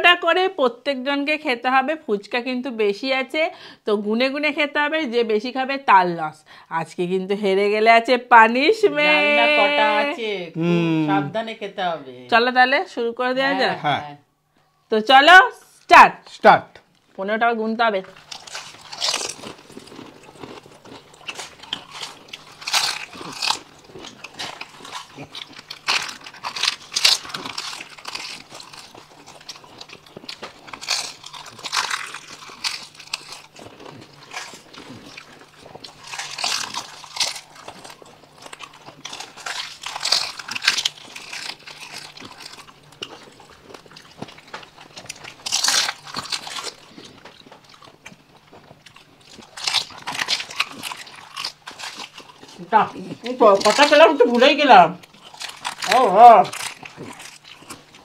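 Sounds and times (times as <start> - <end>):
quiet chewing: 18.0 - 58.0
crunching of crisp shells: 18.1 - 58.0.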